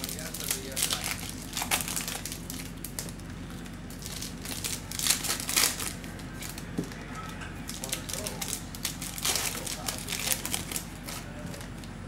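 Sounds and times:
foil wrapper crinkling: 0.0 - 12.0
foil wrapper tearing: 0.0 - 12.0.

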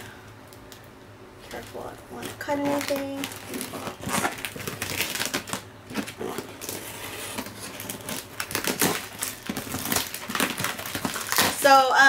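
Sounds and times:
tape and plastic crackling: 0.2 - 12.0.

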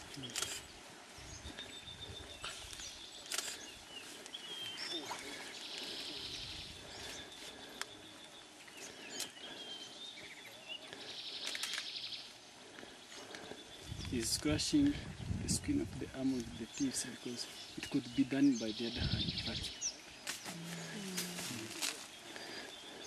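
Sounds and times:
birds chirping: 0.0 - 23.0
vegetation snapping and rustling: 20.2 - 22.1.

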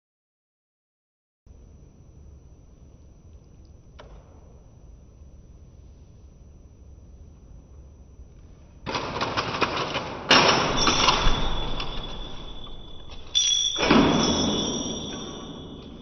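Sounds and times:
robot actuators rattling whir: 8.8 - 16.0
high motor whine: 10.5 - 16.0.

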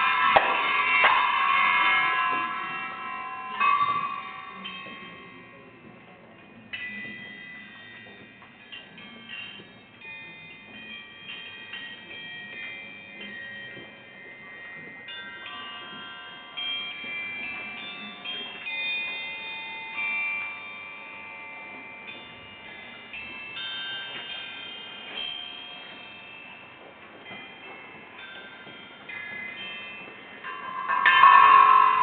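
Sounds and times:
small bells ringing: 0.0 - 32.0
wine glasses ringing: 29.5 - 32.0.

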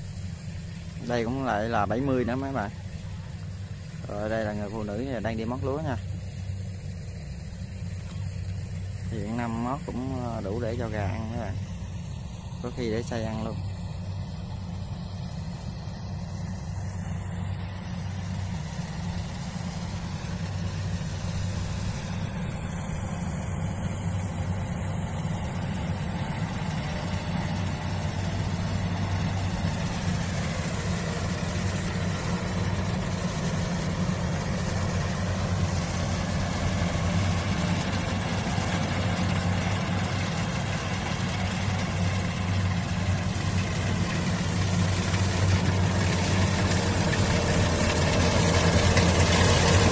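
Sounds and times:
combine harvester engine hum: 0.0 - 49.9
cutting and threshing noise: 16.7 - 49.9.

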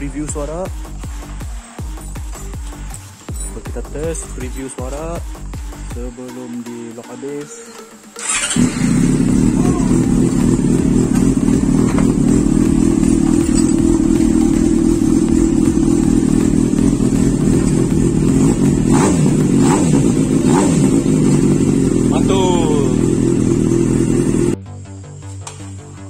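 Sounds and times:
motorcycle engine idling: 8.2 - 24.6.

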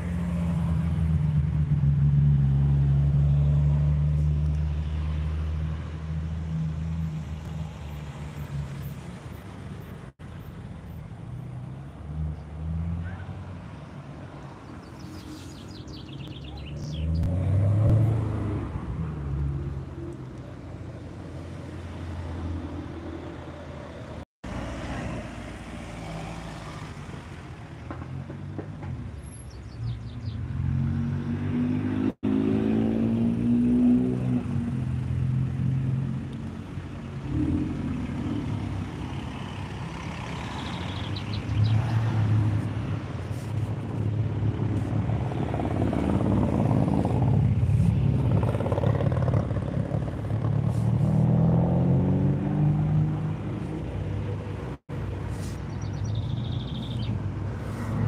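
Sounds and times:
cars revving and accelerating past: 0.0 - 10.2, 11.2 - 58.0.

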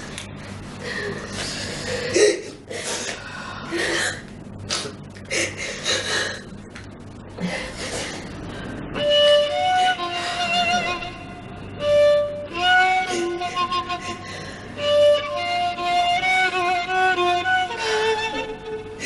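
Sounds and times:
violin music: 9.0 - 19.0.

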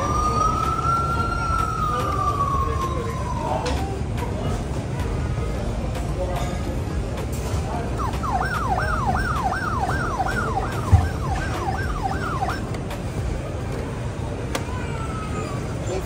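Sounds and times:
toy siren wailing: 0.0 - 3.7, 8.0 - 12.8
background hubbub: 0.0 - 16.0.

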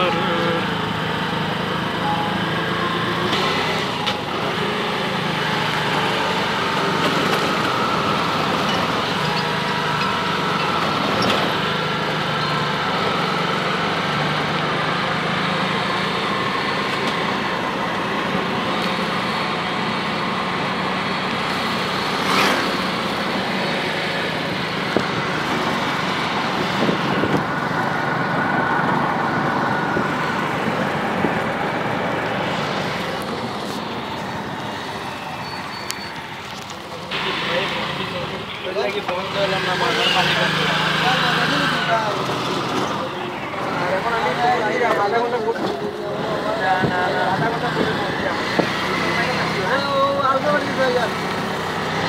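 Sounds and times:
small engine droning: 0.0 - 36.3.

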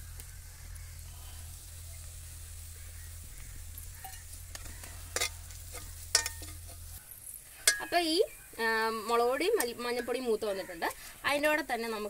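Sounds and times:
onions sizzling in oil: 0.0 - 12.0
metal spatula scraping pan: 3.9 - 7.0
spatula clinking against pan: 5.2 - 6.8, 7.6 - 8.0.

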